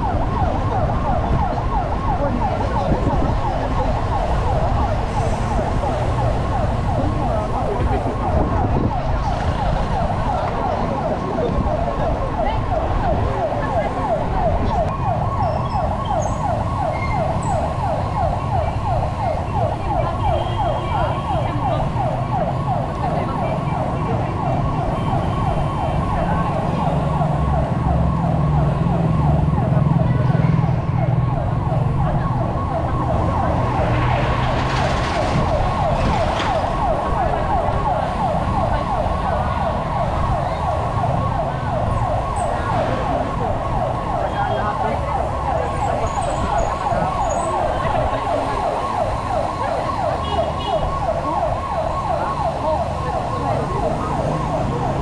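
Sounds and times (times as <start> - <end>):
siren yelping: 0.0 - 55.0.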